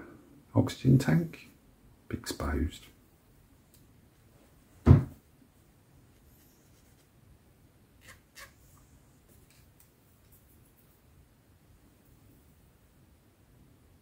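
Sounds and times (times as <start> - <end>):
loud thump on workbench: 4.8 - 5.2.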